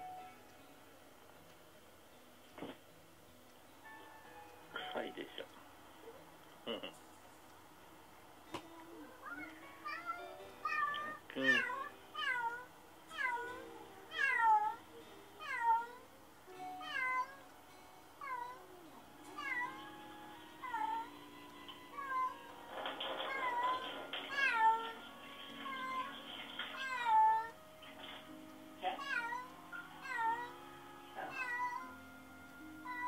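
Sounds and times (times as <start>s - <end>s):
cat meowing: 9.2s - 14.8s, 15.4s - 16.0s, 16.8s - 17.4s, 18.2s - 18.6s, 19.4s - 20.0s, 21.9s - 22.5s, 23.3s - 27.6s, 28.8s - 30.6s, 31.2s - 32.0s.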